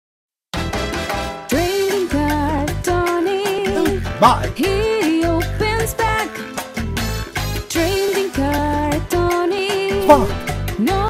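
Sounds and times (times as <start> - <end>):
upbeat theme song with beat: 0.6 - 11.0
person singing: 1.5 - 6.4.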